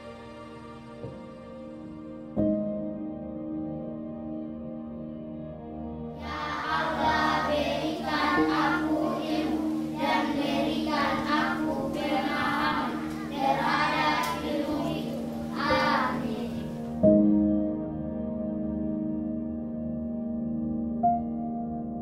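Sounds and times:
soft music with held tones: 0.0 - 22.0
children singing: 6.2 - 16.9.

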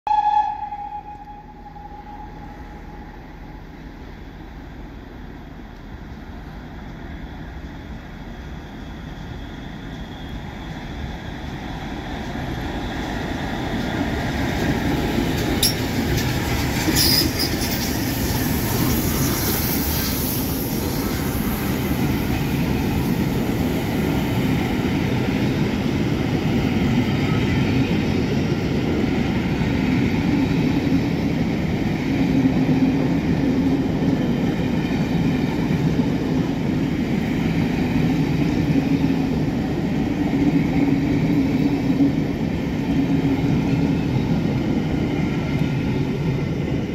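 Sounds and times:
steam train passing: 0.1 - 46.9
train wheels clattering: 13.0 - 20.3.

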